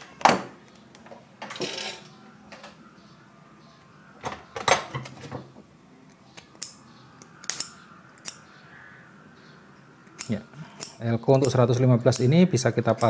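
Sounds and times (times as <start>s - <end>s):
small metal tools clattering: 1.4s - 2.1s.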